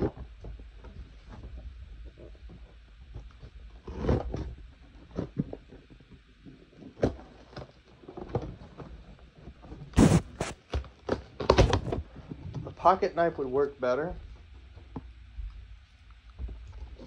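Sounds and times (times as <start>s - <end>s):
cardboard box knocks and scrapes: 10.0s - 10.6s.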